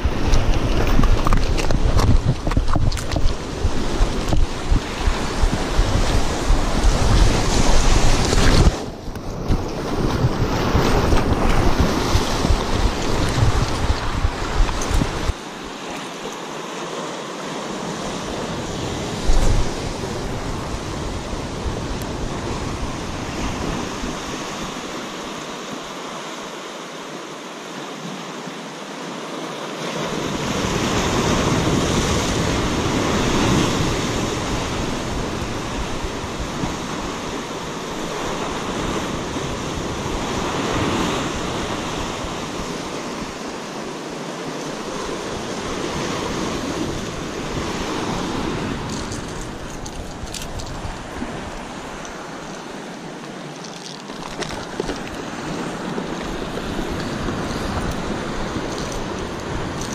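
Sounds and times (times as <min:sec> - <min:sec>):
wind buffeting microphone: 0:00.0 - 0:15.4, 0:18.1 - 0:24.9, 0:44.8 - 0:53.0, 0:54.1 - 0:59.9
surf breaking over rocks: 0:00.0 - 0:16.9.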